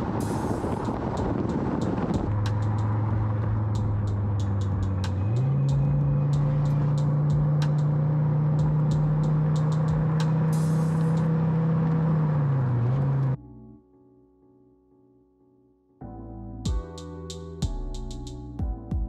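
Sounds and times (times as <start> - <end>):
car engine running: 0.0 - 13.4
sharp ticks: 0.1 - 8.0, 8.6 - 11.3.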